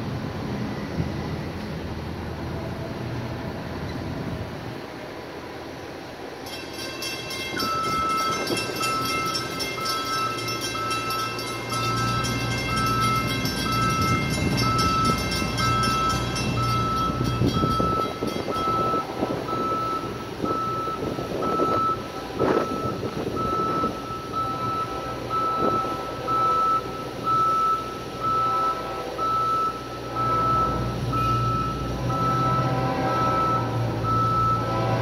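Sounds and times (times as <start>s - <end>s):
rumbling traffic: 0.0s - 35.0s
crossing warning bell ringing: 6.0s - 35.0s
distant train horn: 7.0s - 35.0s
wind noise: 12.8s - 24.1s.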